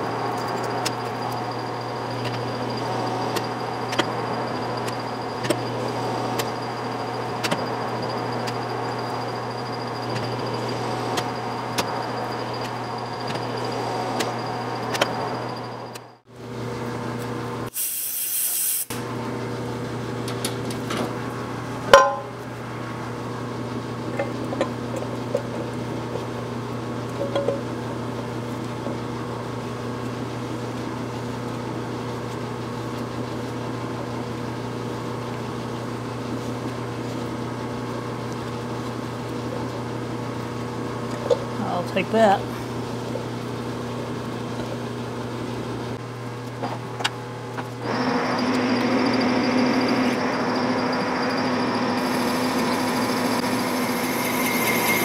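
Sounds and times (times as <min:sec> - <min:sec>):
metal lathe humming: 0:00.0 - 0:16.2, 0:47.8 - 0:55.0
compressed air blast: 0:17.7 - 0:19.0.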